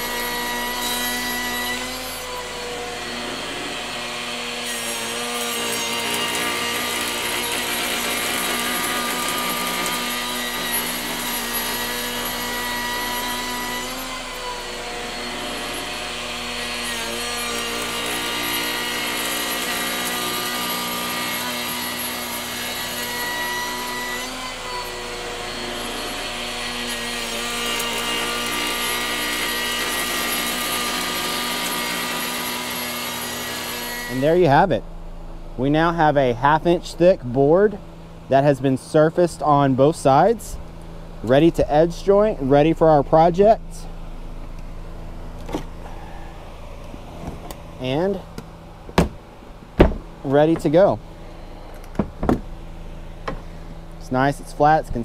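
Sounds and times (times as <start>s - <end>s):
router whining: 0.0s - 34.6s.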